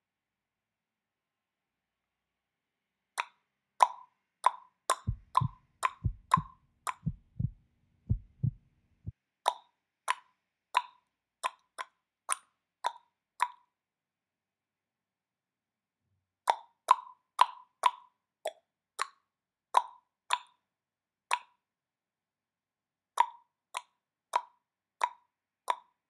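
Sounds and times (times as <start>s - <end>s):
low thuds: 5.1s - 8.6s.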